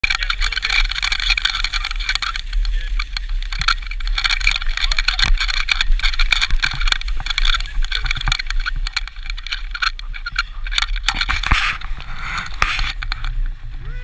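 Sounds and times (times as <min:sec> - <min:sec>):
skis scraping on snow: 0:00.0 - 0:13.9
wind rumble on microphone: 0:00.0 - 0:14.0.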